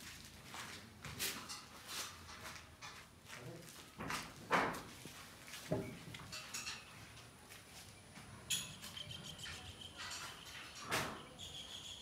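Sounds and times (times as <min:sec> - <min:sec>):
insect chirping: 0:08.4 - 0:12.0.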